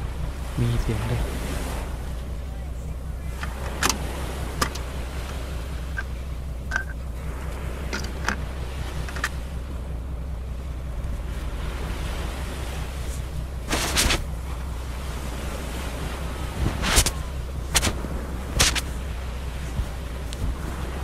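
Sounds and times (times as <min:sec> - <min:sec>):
gentle surf: 0:00.0 - 0:21.0
wind rumble on microphone: 0:00.0 - 0:21.0
rustling noises: 0:13.0 - 0:14.3, 0:16.6 - 0:19.0.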